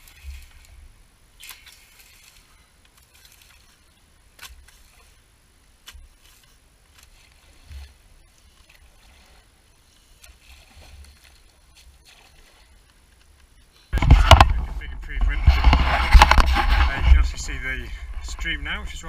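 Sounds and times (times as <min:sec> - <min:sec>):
rake scraping through dry grass: 0:15.4 - 0:17.4.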